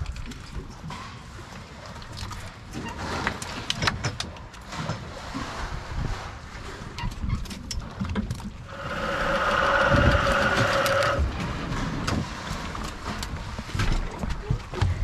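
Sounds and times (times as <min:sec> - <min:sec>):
low rumble: 0:08.4 - 0:14.4
electric motor whining: 0:08.7 - 0:11.3.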